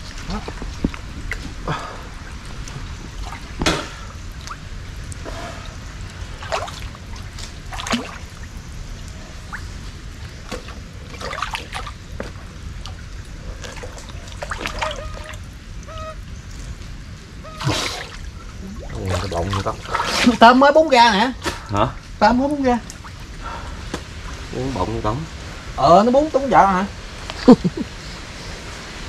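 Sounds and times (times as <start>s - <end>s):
person wading with splashes: 0.0s - 15.8s, 17.4s - 20.5s
water trickling and splashing: 0.0s - 29.0s.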